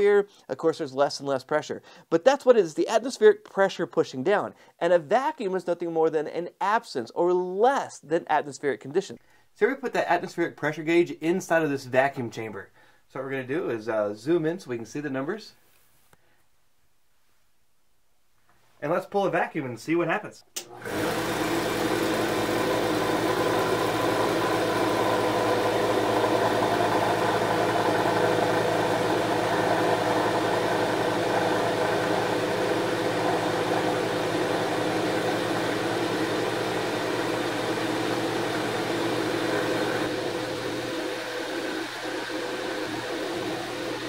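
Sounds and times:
vacuum pump humming: 20.6s - 44.0s.

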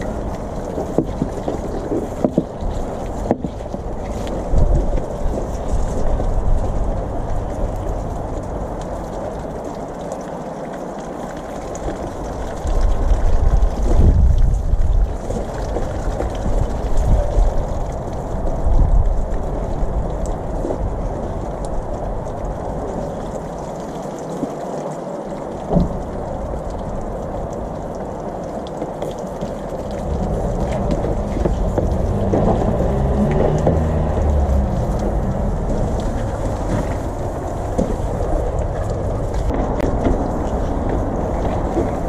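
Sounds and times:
water jets spraying: 0.0s - 42.0s.

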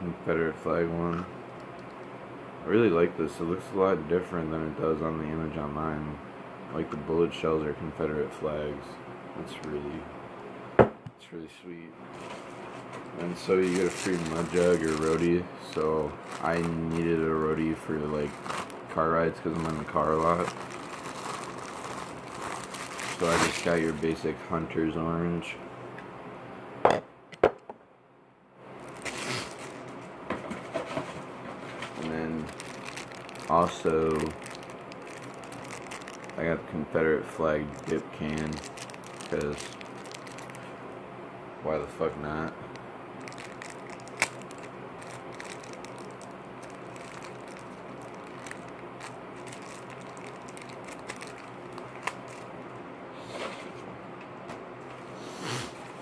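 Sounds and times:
rustling and scraping: 12.1s - 18.7s, 19.4s - 24.0s, 28.8s - 36.4s, 53.2s - 53.9s
faint crinkling: 12.1s - 24.2s, 28.8s - 30.0s, 30.6s - 40.8s, 42.4s - 52.6s
light clicks of packaging: 37.8s - 40.6s, 43.3s - 52.4s.

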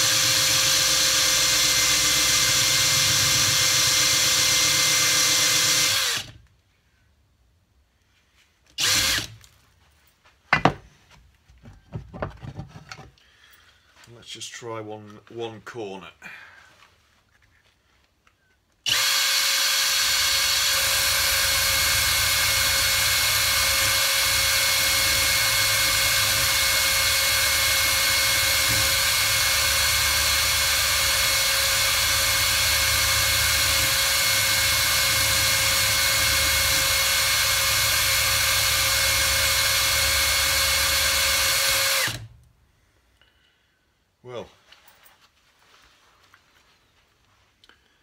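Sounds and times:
drill spinning buffing mop whine: 0.0s - 6.4s, 8.8s - 9.3s, 18.9s - 42.3s.

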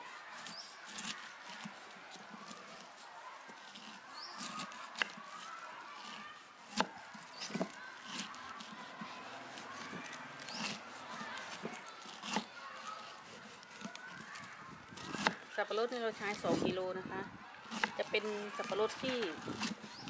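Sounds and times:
knife cutting pineapple: 0.0s - 16.8s, 17.5s - 20.0s.

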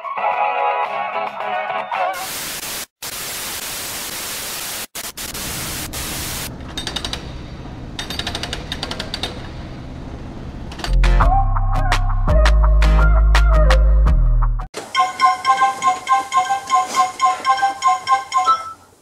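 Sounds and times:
tv static hiss: 2.2s - 6.5s
rapid mechanical hammering: 6.5s - 11.2s
music with heavy bass: 11.0s - 14.7s.

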